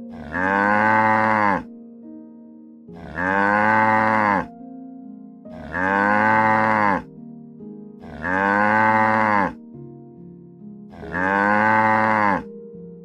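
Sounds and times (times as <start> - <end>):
soft background music: 0.0 - 13.0
cow mooing: 0.1 - 1.7, 3.0 - 4.5, 5.5 - 7.1, 8.0 - 9.6, 10.9 - 12.5.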